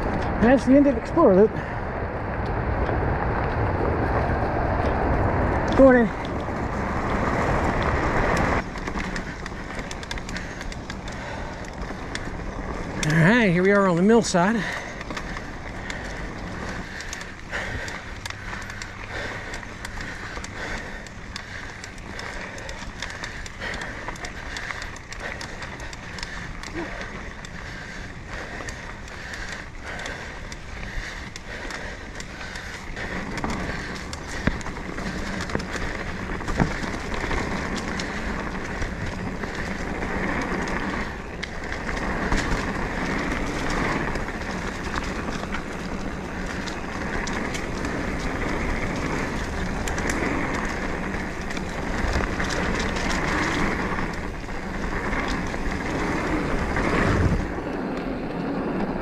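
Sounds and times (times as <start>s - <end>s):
bike clicks and rattles: 0.0s - 59.0s
bike tyres on dirt: 0.0s - 59.0s.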